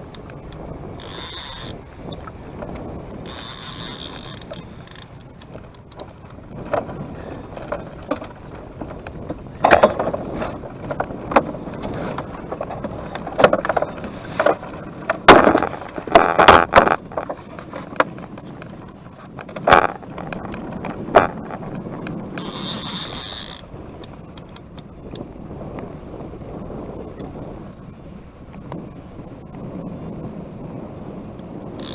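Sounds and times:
wind on microphone: 0.0 - 31.9
knocks and splashes against boat: 1.0 - 25.9.

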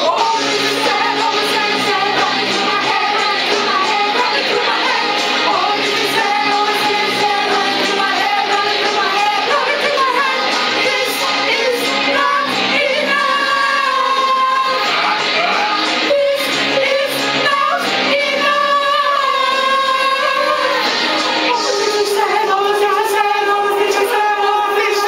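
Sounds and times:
group singing pop song: 0.0 - 25.0.

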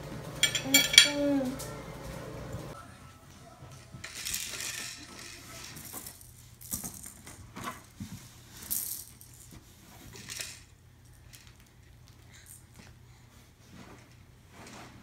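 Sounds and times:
toys rattling and rustling: 3.7 - 15.0.

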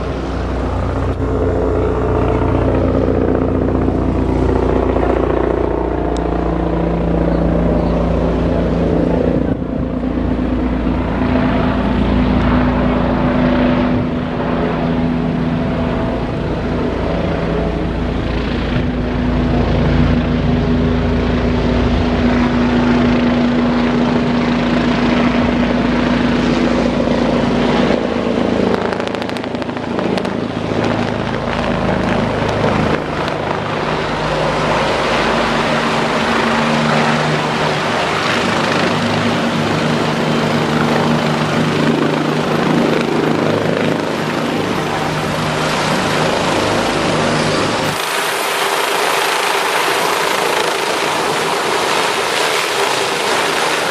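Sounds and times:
helicopter turbine whine and rotor: 0.0 - 53.9.

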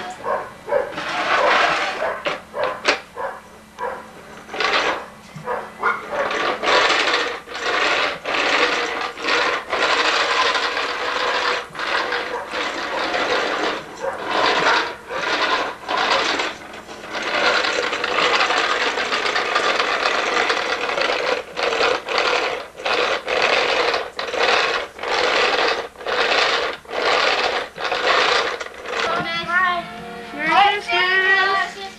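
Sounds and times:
toy push vacuum rattling: 0.9 - 3.0, 4.4 - 5.1, 5.8 - 29.4.

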